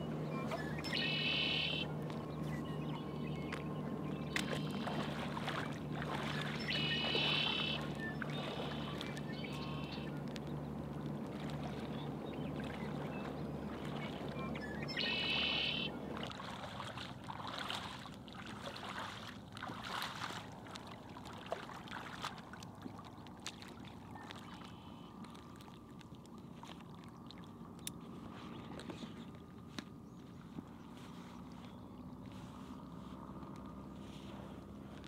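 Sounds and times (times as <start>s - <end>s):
bird call: 0.0s - 10.2s, 11.8s - 16.2s
water splashing and sloshing: 0.0s - 35.0s.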